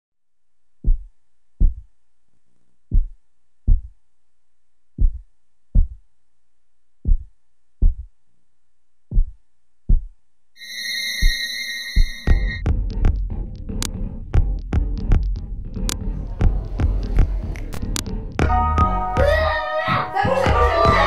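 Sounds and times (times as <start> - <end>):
heartbeat thumps: 0.8 - 1.9, 2.9 - 4.0, 5.0 - 6.0, 7.0 - 8.2, 9.1 - 10.2, 14.3 - 19.4, 20.4 - 21.0.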